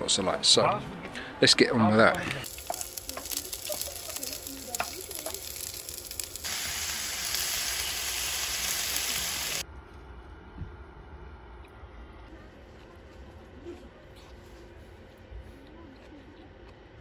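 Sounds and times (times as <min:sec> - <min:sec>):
wooden spoon stirring: 0:02.4 - 0:06.4
onions sizzling in a frying pan: 0:02.4 - 0:09.6.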